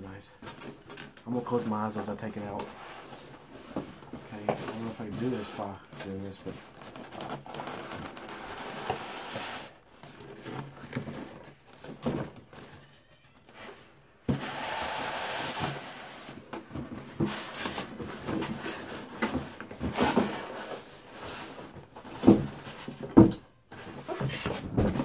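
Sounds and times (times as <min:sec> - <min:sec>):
rustling: 0:00.4 - 0:23.1
box lid scraping and rubbing: 0:07.0 - 0:11.4.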